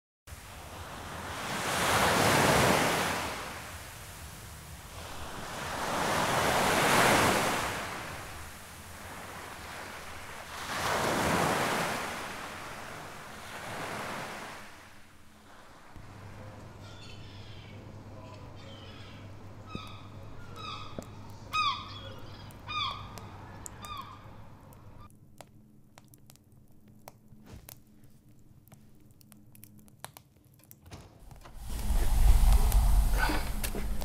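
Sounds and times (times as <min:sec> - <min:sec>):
ocean waves washing in: 0:00.3 - 0:16.4, 0:31.3 - 0:34.0.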